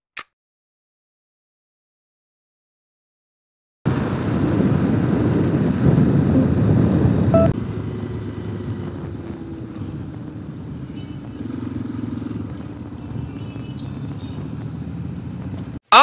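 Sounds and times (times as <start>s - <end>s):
wind noise: 3.9s - 11.6s, 12.2s - 15.8s
motorcycle engine rumble: 3.9s - 15.8s.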